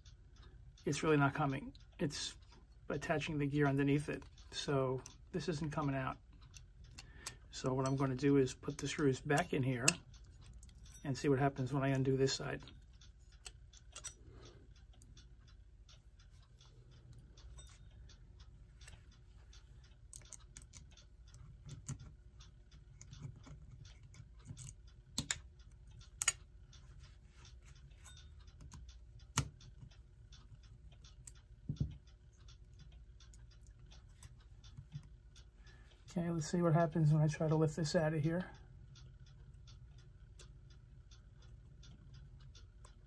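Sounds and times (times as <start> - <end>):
metallic clicks and scrapes of tools: 13.1 - 15.2.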